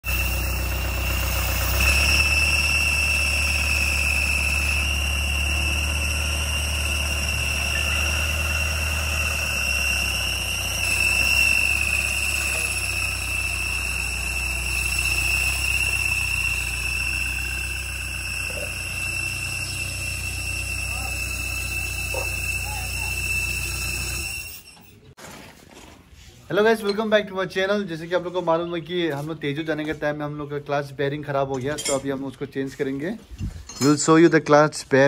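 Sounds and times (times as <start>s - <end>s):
engine running: 0.0s - 24.7s
high-pitched squeal: 0.0s - 25.1s.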